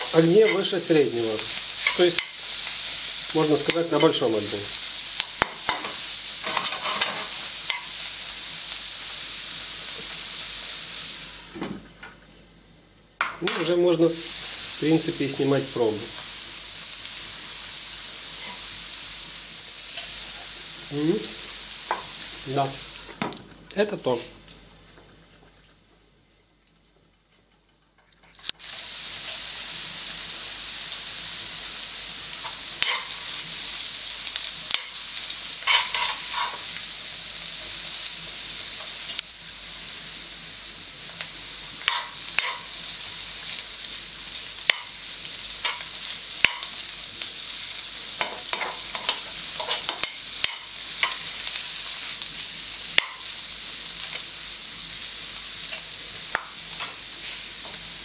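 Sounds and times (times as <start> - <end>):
mushrooms sizzling in a pan: 0.0 - 12.4, 13.2 - 24.9, 28.5 - 58.0
spatula scraping and knocking on pan: 5.4 - 7.9, 35.6 - 36.6, 48.2 - 51.2.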